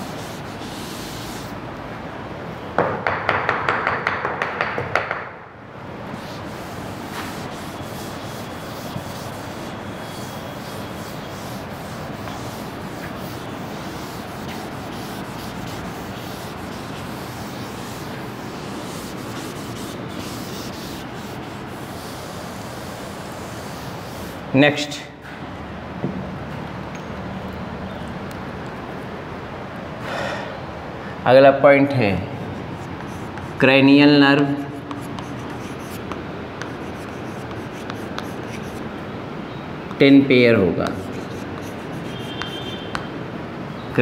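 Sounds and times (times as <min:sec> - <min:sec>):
eraser rubbing on board: 0:00.0 - 0:01.6, 0:06.2 - 0:24.5, 0:32.4 - 0:33.7, 0:34.4 - 0:38.8, 0:40.9 - 0:43.0
steady hiss: 0:06.1 - 0:24.5.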